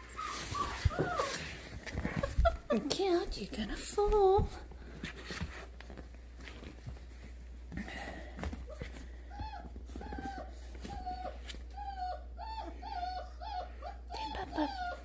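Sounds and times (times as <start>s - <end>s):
puppy whining: 0.0s - 2.9s, 8.5s - 15.0s.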